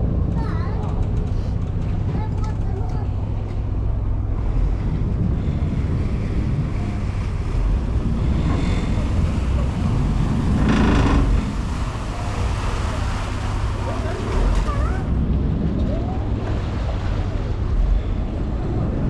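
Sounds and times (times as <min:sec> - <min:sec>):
ferry engine low rumble: 0:00.0 - 0:19.0
wind buffeting microphone: 0:00.0 - 0:19.0
water rushing: 0:04.2 - 0:19.0.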